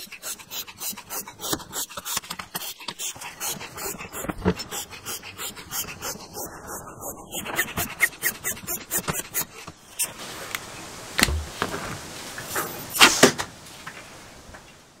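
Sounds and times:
foot pump puffing air: 0.0 - 10.2
low knock: 11.2 - 11.7.

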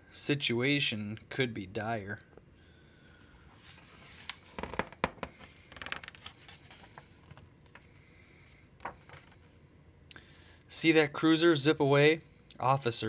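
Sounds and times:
paper rustling: 5.7 - 7.9, 8.8 - 9.5.

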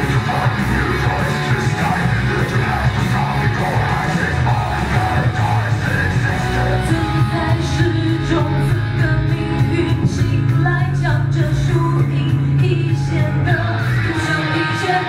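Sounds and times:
rock band playing: 0.0 - 15.0
woman singing into a microphone: 6.8 - 15.0.

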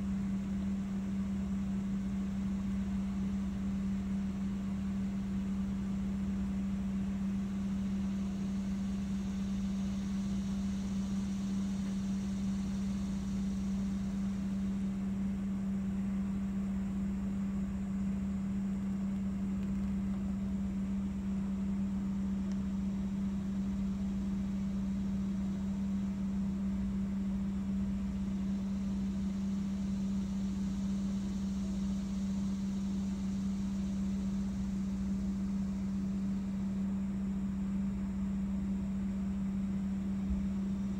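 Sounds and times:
steady motor hum: 0.0 - 40.9.

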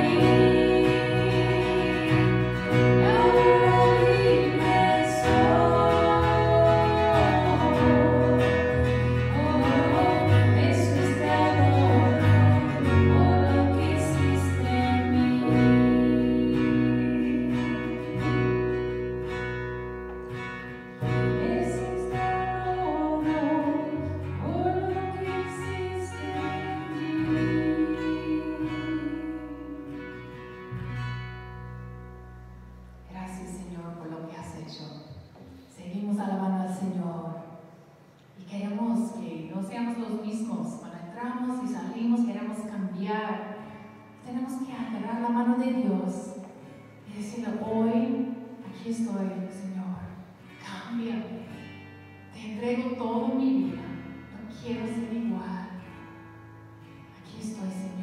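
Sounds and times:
women singing: 0.0 - 18.6, 21.3 - 30.2
electric guitar: 0.0 - 33.1
keyboard: 0.0 - 35.6
acoustic guitar: 0.0 - 58.0.

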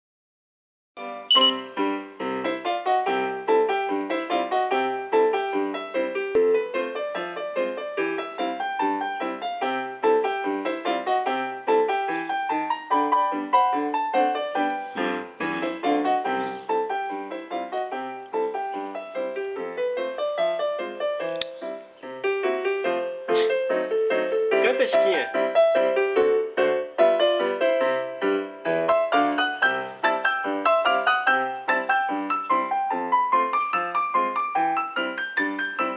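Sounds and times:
piano playing quick notes: 1.3 - 3.1, 9.7 - 35.9.

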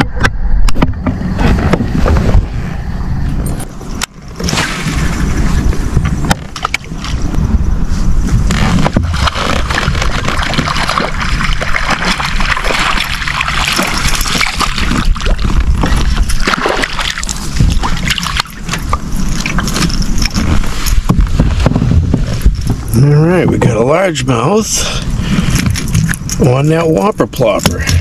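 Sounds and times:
steady low rumble: 0.0 - 28.0
fish splashing in water: 8.5 - 22.6.

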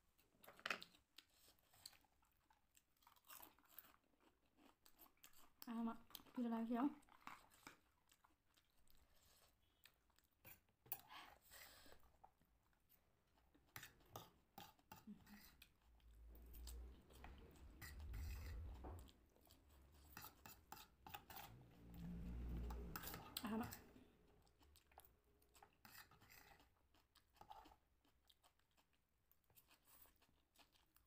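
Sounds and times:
chewing: 0.1 - 31.0
low rumble: 16.2 - 19.1, 21.6 - 23.4.

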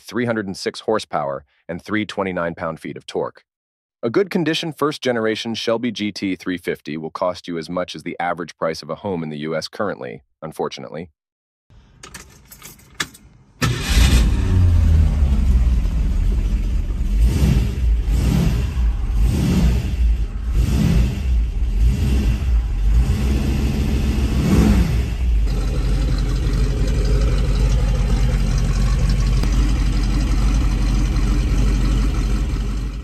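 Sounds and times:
car engine starting and revving: 13.6 - 33.0.

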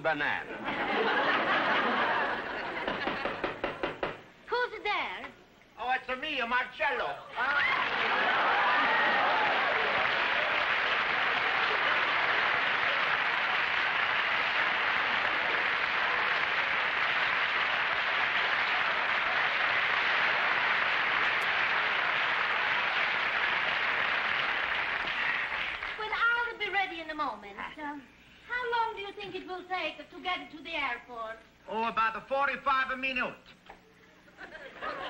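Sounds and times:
studio audience applauding: 7.3 - 26.1.

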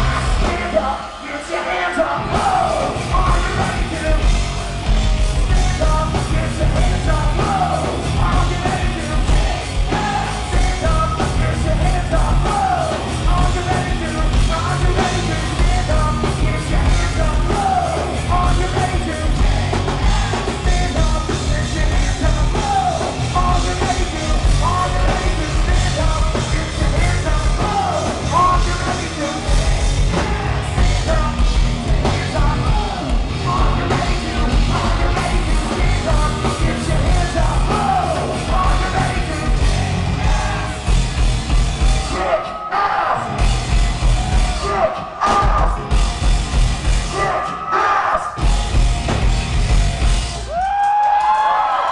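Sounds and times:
singer yelling and singing: 0.0 - 4.5, 5.3 - 41.1, 41.8 - 46.0, 46.8 - 48.5
hard rock band playing: 0.0 - 51.9.

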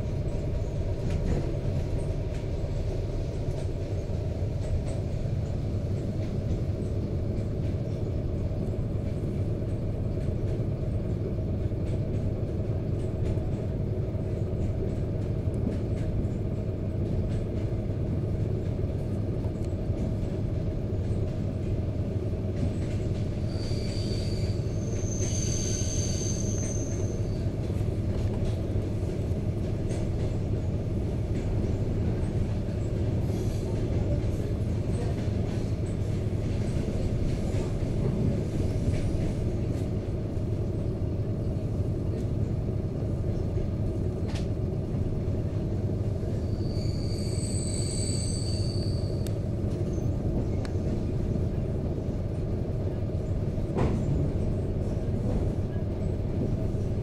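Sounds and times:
train wheels rumbling: 0.0 - 57.0
high wheel squeal: 23.5 - 27.4, 46.4 - 49.2.

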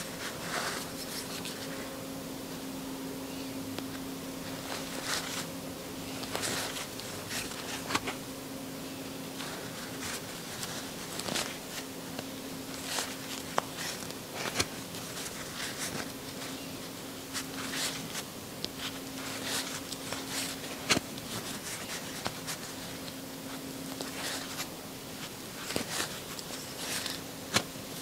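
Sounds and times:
low steady hum: 0.0 - 28.0
crochet hook and yarn rustling: 3.9 - 8.2, 9.3 - 28.0.

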